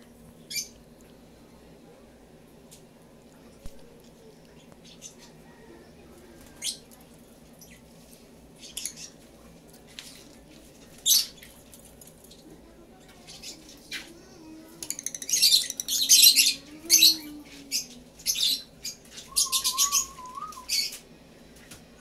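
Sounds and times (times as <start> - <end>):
lovebirds chirping shrilly: 15.1 - 21.0.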